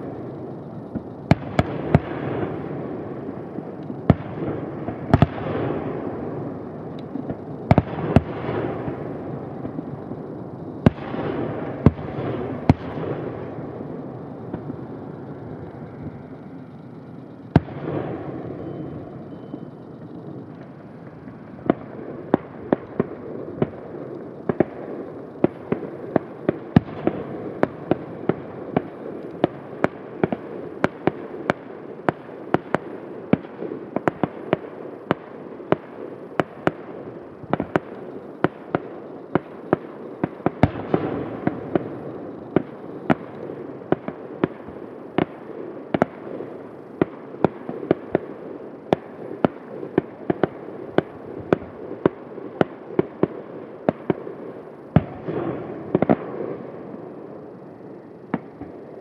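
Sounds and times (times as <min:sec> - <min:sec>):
fireworks bangs: 0:00.0 - 0:59.0
steady rumble: 0:08.7 - 0:26.5.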